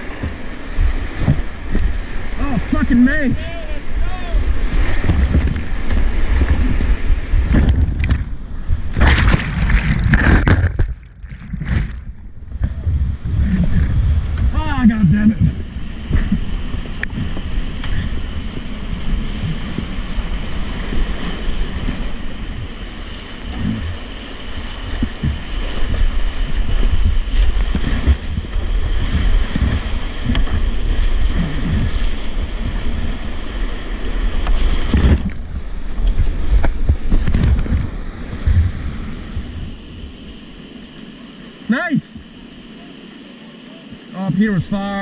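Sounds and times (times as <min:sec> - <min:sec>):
whitewater rapids rushing: 0:00.0 - 0:07.7, 0:14.6 - 0:45.0
wind buffeting microphone: 0:00.0 - 0:40.7.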